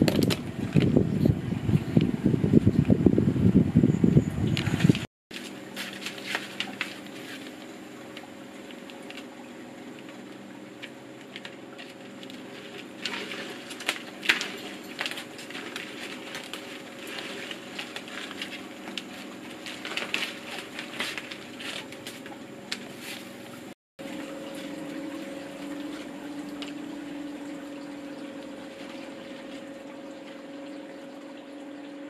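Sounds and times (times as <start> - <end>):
steady low hum: 0.0 - 32.0
wire and pinwheels crinkling: 4.9 - 9.3, 9.9 - 23.8.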